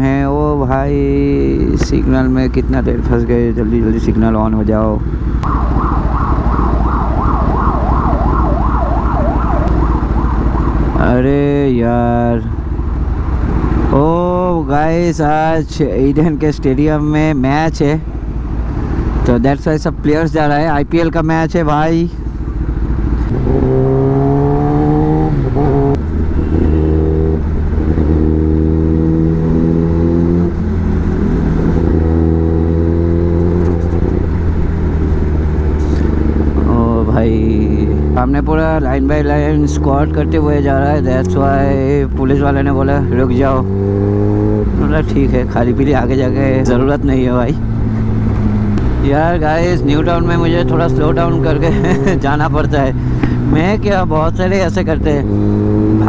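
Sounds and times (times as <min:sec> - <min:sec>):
engines idling in traffic: 0:00.0 - 0:28.7, 0:30.3 - 0:56.0
police siren wailing: 0:05.4 - 0:11.1
motorcycle engine pulling away: 0:22.8 - 0:37.1, 0:43.3 - 0:44.7, 0:54.8 - 0:56.0.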